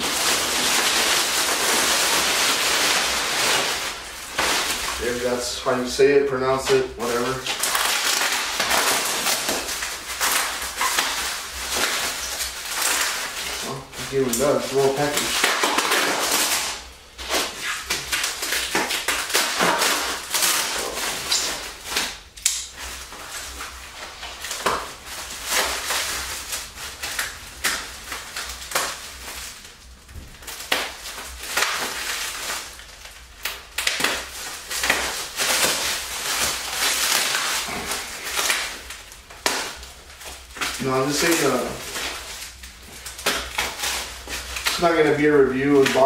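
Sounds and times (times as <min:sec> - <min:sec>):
plastic wrap crinkling and tearing: 0:00.0 - 0:46.0.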